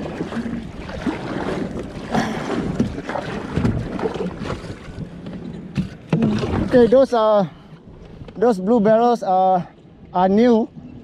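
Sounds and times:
wind buffeting microphone: 0.0 - 9.0
water lapping against hull: 0.0 - 11.0.

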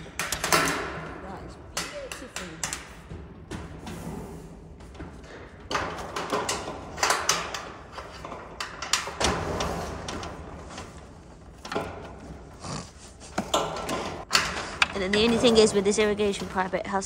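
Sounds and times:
pipe knocking and clattering: 4.8 - 12.5.

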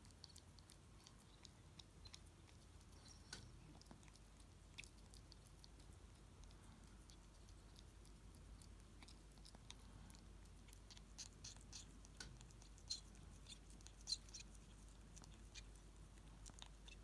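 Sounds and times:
wet smacking clicks: 0.0 - 13.0
ferret lapping and chewing: 0.0 - 17.0.

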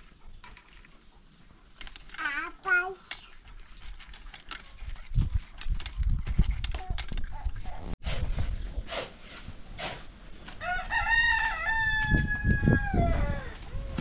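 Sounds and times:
rooster crowing: 10.6 - 13.6.

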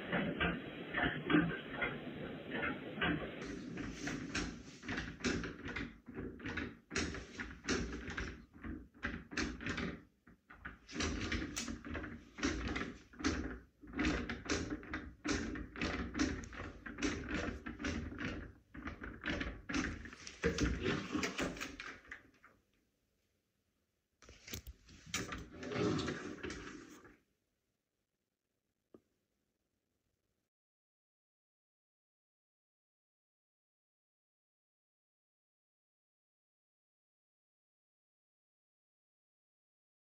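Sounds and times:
knocks and rustles: 3.0 - 22.3
folding closet doors opening: 24.3 - 27.0.

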